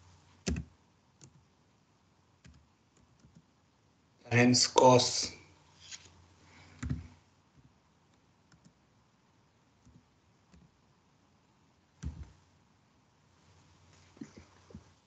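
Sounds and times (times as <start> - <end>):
keystrokes on computer keyboard: 0.4 - 1.4, 2.4 - 3.5, 6.8 - 7.0, 8.5 - 8.8.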